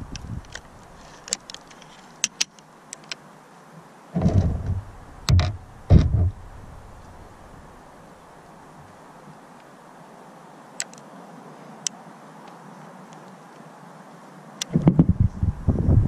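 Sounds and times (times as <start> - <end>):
dull thumps: 4.2 - 7.2, 14.7 - 15.5.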